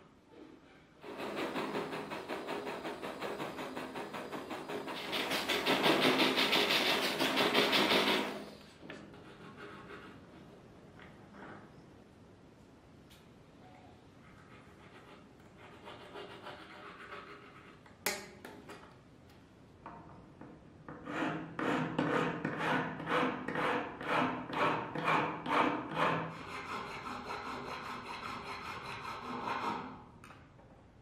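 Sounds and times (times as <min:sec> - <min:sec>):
file rasping on metal: 0:01.0 - 0:10.2, 0:14.6 - 0:17.8, 0:20.9 - 0:30.0.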